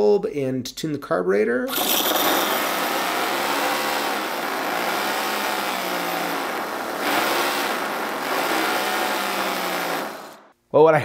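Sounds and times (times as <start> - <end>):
model engine running: 1.7 - 10.5.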